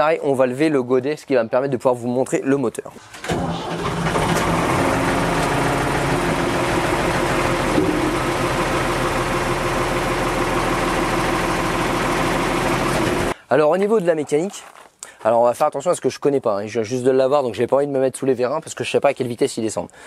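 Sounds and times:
hydraulic loader bucket raising: 3.0s - 10.0s
diesel engine running: 3.0s - 13.4s.

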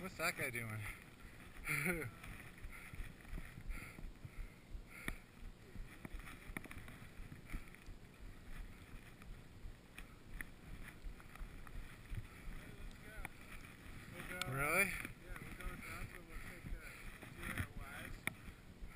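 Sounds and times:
faint clicks: 5.0s - 5.3s, 17.1s - 18.6s.

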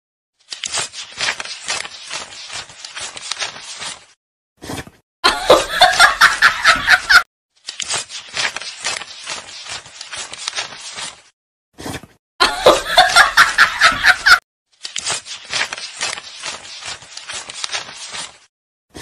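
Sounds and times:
snickering laughter: 5.3s - 7.2s, 12.4s - 14.4s.

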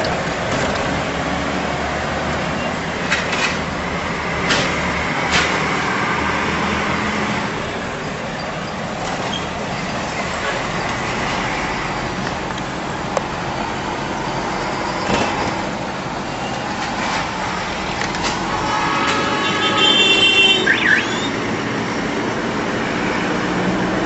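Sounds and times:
road and traffic noise: 0.0s - 24.0s
vehicle horn: 18.4s - 21.3s.

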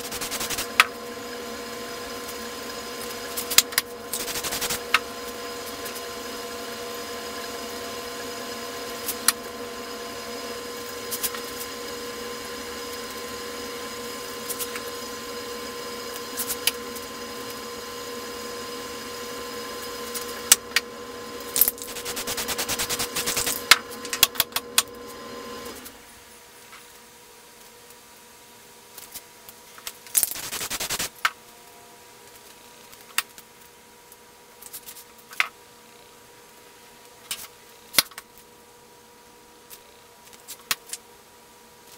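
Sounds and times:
paint scraper scraping board: 0.0s - 0.9s, 2.2s - 5.0s, 21.6s - 24.2s, 30.3s - 31.2s
steady mechanical hum: 0.0s - 41.9s.

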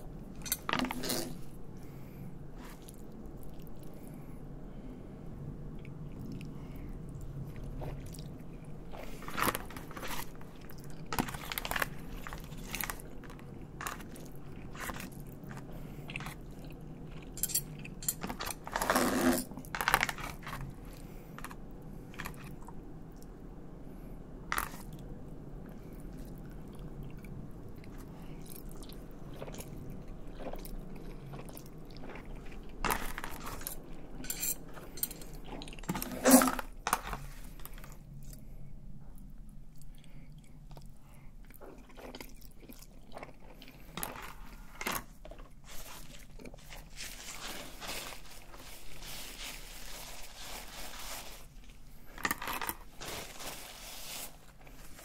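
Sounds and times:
chewing: 5.8s - 18.7s, 25.7s - 38.5s, 39.1s - 53.3s
cutlery clatter: 17.4s - 18.6s, 33.0s - 35.4s
cutlery scraping foil tray: 32.9s - 37.2s.

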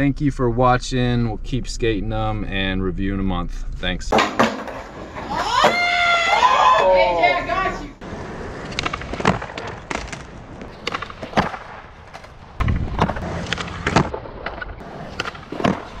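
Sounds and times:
skateboard clacking on ground: 4.1s - 5.9s, 8.6s - 16.0s
skateboard wheels rolling: 4.1s - 16.0s.

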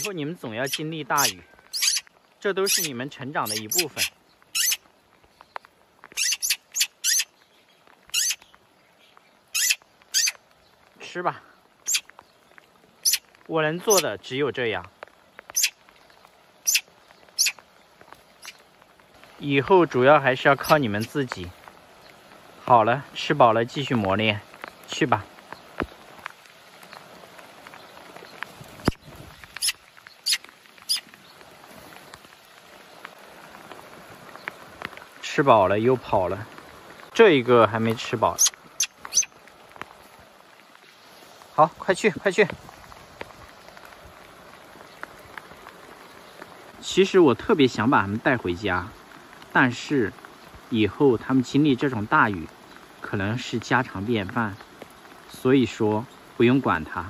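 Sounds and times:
bird fledglings begging calls: 0.0s - 10.8s, 11.8s - 12.1s, 13.0s - 14.1s, 15.5s - 15.8s, 16.6s - 17.6s, 18.3s - 18.6s, 27.8s - 31.0s, 38.3s - 39.4s
light rain patter: 0.0s - 57.0s.

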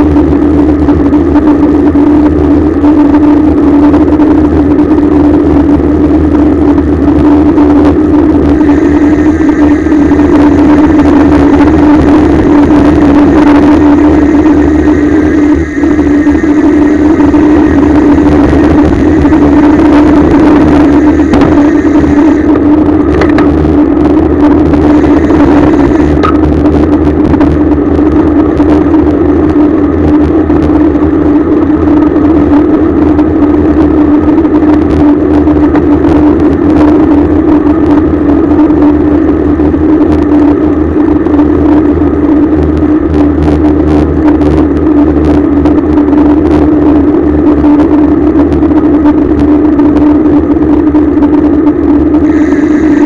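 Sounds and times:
bicycle riding noise rush: 0.0s - 53.0s.

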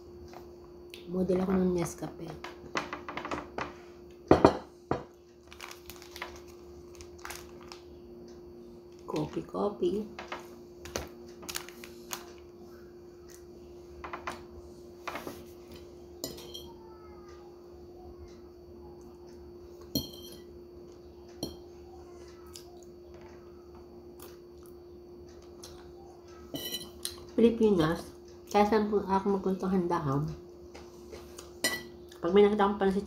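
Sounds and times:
faint steady hum: 0.0s - 33.0s
spoon and fork clinking on bowl: 16.2s - 16.7s, 19.9s - 20.5s, 26.5s - 27.3s.

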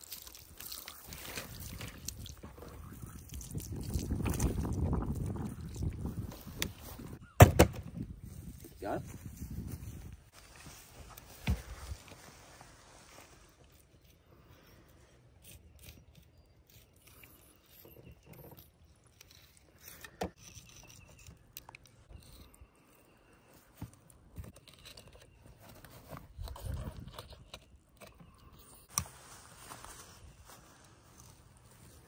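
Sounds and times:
knife cutting and scraping fish: 0.0s - 7.1s, 13.7s - 23.2s.

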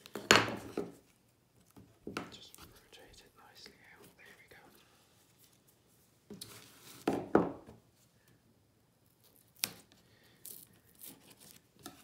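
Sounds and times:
book cover knocking on table: 7.0s - 7.7s.

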